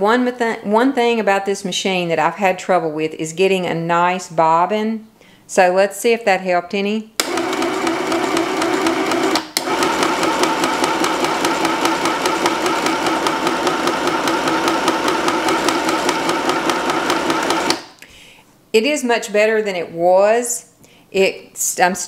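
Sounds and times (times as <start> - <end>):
sewing machine motor hum: 7.2 - 17.8.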